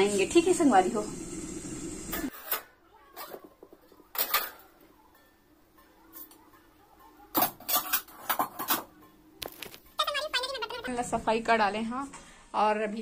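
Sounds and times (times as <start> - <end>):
metal utensils clinking: 2.1 - 9.3.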